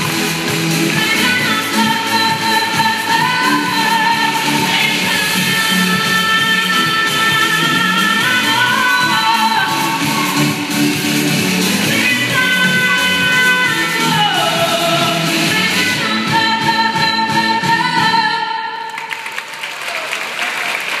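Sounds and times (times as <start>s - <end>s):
instrumental backing music: 0.0s - 18.5s
woman singing pop song: 0.0s - 18.9s
audience applause: 18.9s - 21.0s.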